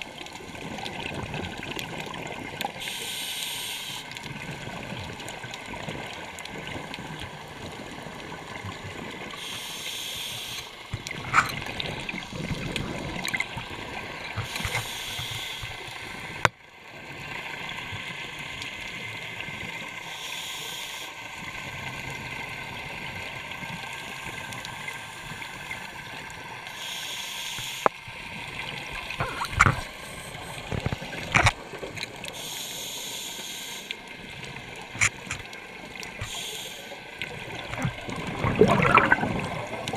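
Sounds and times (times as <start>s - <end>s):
steady underwater noise: 0.0s - 39.9s
scuba regulator breathing: 2.8s - 4.2s, 9.3s - 11.5s, 14.4s - 16.0s, 20.0s - 21.2s, 26.7s - 28.0s, 32.2s - 34.0s, 36.1s - 37.1s
exhaled bubbles: 10.9s - 14.8s, 37.2s - 39.9s.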